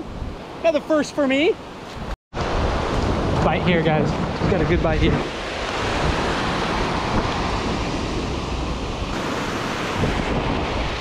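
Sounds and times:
wind rumbling on microphone: 1.8s - 11.0s
ocean surf breaking: 2.4s - 11.0s.

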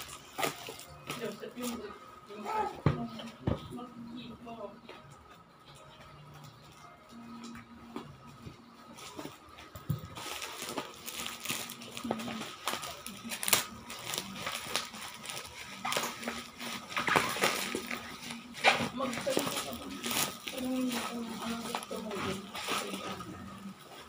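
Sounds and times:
plastic wrapping crinkling and tearing: 0.0s - 2.5s, 9.0s - 24.0s.

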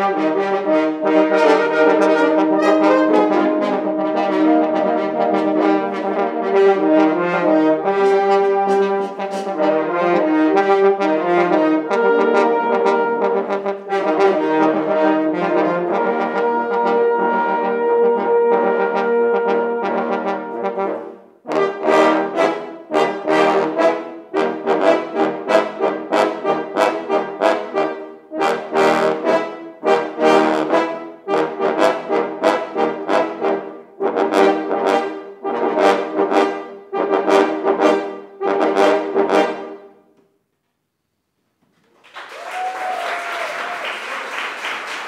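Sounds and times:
french horns playing chords: 0.0s - 40.1s
audience applauding: 41.9s - 45.0s.

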